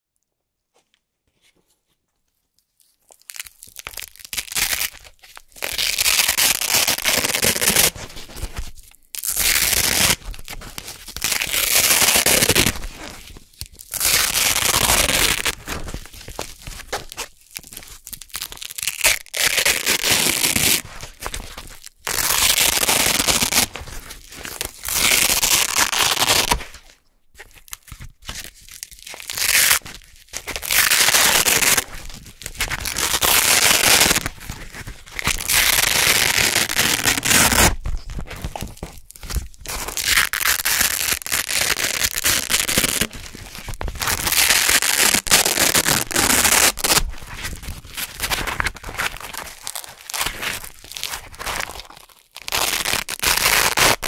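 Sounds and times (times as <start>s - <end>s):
hook-and-loop fastener ripping: 3.1s - 54.0s.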